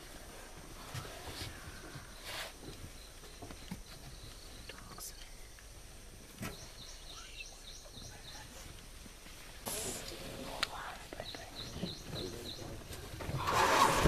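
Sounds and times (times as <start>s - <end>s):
high repeated chirping calls: 6.5s - 8.6s, 9.7s - 12.8s.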